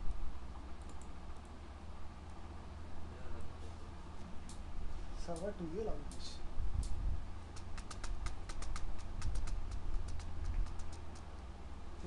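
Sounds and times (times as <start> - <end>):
low electrical hum: 0.0 - 12.0
computer keyboard clicks: 0.8 - 1.6, 6.8 - 11.4.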